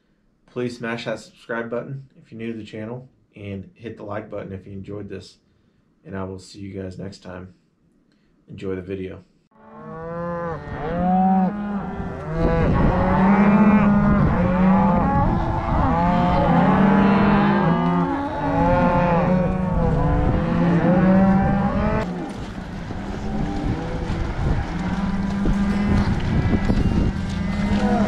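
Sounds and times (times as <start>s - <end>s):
chorus of animal calls: 9.6s - 28.0s.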